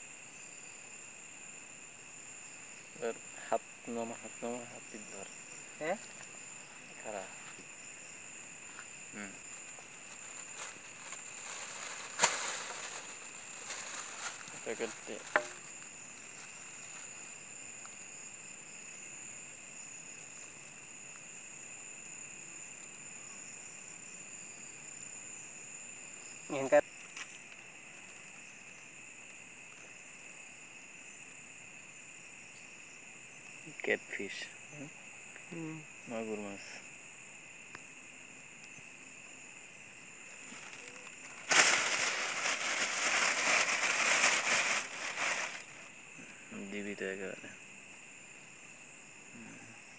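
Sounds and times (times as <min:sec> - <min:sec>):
crickets trilling: 0:00.0 - 0:49.9
plastic bag crinkling: 0:09.8 - 0:17.3, 0:40.3 - 0:45.9.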